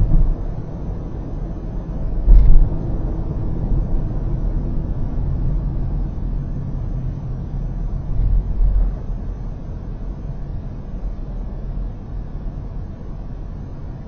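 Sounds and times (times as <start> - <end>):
tyre and engine rumble: 0.0 - 6.5
loud thump: 2.3 - 2.8.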